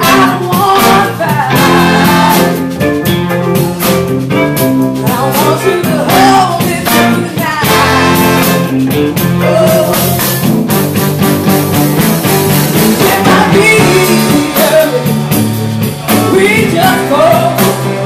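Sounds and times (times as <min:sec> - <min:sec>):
woman singing lead: 0:00.0 - 0:03.2, 0:04.8 - 0:10.5, 0:12.7 - 0:18.0
horns: 0:00.0 - 0:04.6, 0:05.3 - 0:18.0
bass: 0:00.0 - 0:18.0
electric guitar: 0:00.0 - 0:18.0
electric keyboard: 0:00.0 - 0:18.0
steady drum beat: 0:00.0 - 0:18.0.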